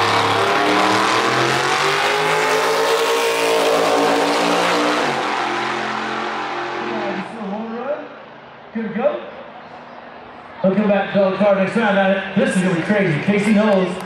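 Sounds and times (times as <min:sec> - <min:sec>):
race car engine accelerating: 0:00.0 - 0:07.7.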